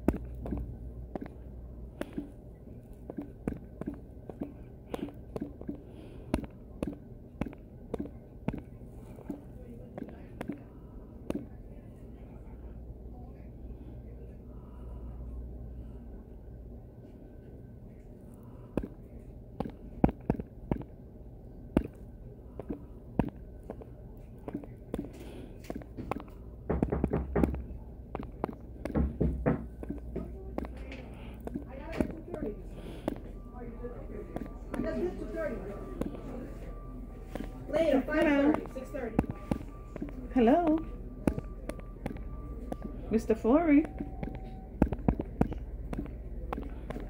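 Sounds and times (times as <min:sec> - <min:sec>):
low steady hum: 0:00.0 - 0:47.0
fingers tapping touchscreen keyboard: 0:02.0 - 0:02.4, 0:03.0 - 0:11.6, 0:18.7 - 0:21.0, 0:22.6 - 0:33.4, 0:37.3 - 0:47.0.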